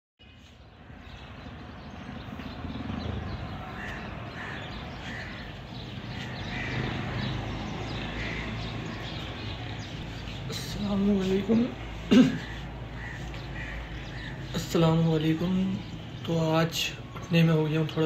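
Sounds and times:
street traffic rumble: 0:00.2 - 0:18.0
crows cawing: 0:03.2 - 0:10.5, 0:11.8 - 0:14.6.

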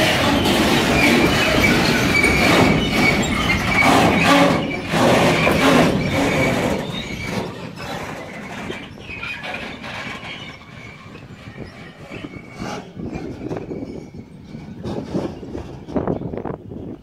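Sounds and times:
thin steady squeal: 0:00.0 - 0:17.0
train wheels clattering over rails: 0:00.0 - 0:17.0.

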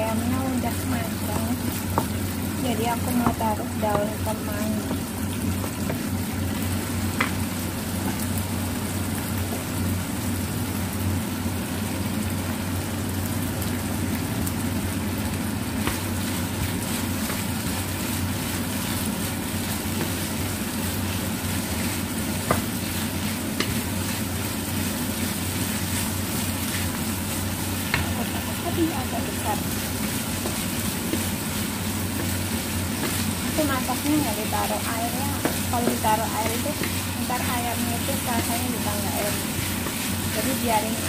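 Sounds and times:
food sizzling in a frying pan: 0:00.0 - 0:41.0
steady low hum: 0:00.0 - 0:41.0
spatula stirring: 0:15.8 - 0:41.0.

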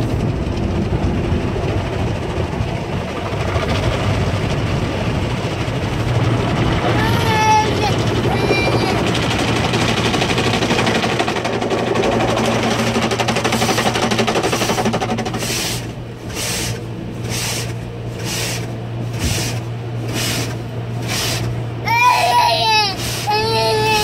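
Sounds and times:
steady low hum: 0:00.0 - 0:24.0
water spray pulsing over car: 0:00.0 - 0:24.0
car wash brushes scrubbing windows: 0:06.2 - 0:24.0.

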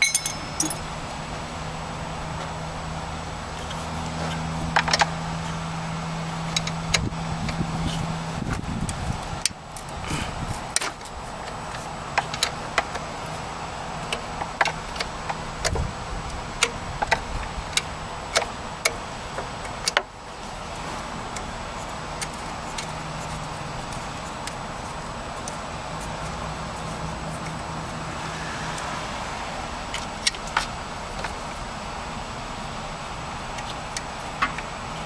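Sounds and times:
metallic tool clicks: 0:00.0 - 0:00.9
low steady hum: 0:00.0 - 0:11.6.

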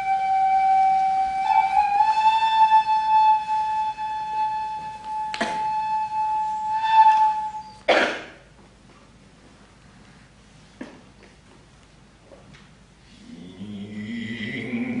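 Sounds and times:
bamboo flute long high note: 0:00.0 - 0:07.8.

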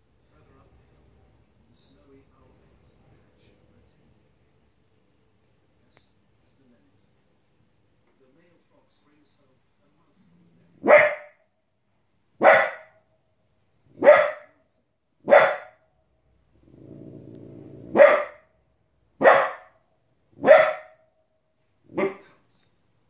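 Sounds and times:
puppy barking: 0:10.8 - 0:11.4, 0:12.4 - 0:13.0, 0:13.9 - 0:14.6, 0:15.2 - 0:15.8, 0:17.9 - 0:18.5, 0:19.2 - 0:19.8, 0:20.4 - 0:21.1, 0:21.9 - 0:22.4.

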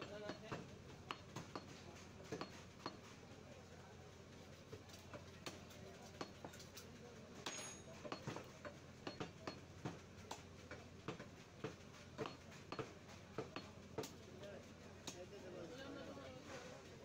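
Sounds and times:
cleaver chopping on wooden block: 0:11.1 - 0:14.1.

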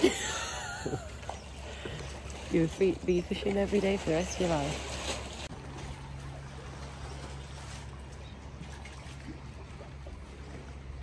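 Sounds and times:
water washing: 0:00.0 - 0:11.0.

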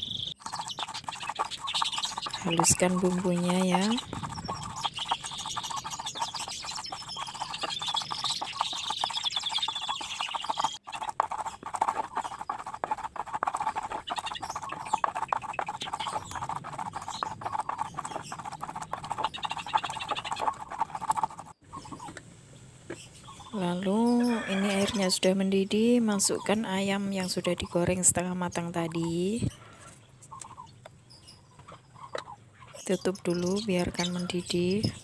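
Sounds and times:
stone pestle grinding and pounding: 0:00.4 - 0:21.6.

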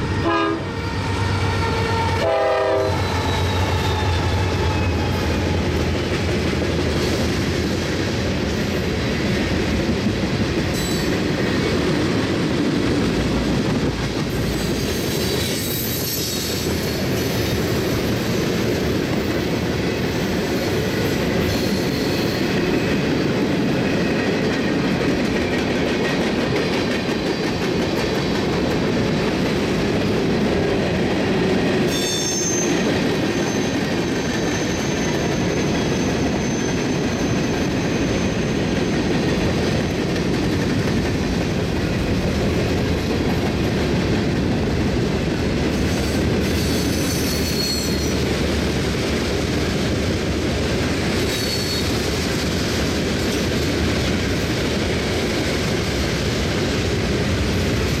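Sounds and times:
train wheels rumbling on rails: 0:00.0 - 0:58.0
high wheel squeals: 0:02.9 - 0:06.1, 0:31.9 - 0:38.9, 0:46.0 - 0:48.2, 0:51.3 - 0:52.0.

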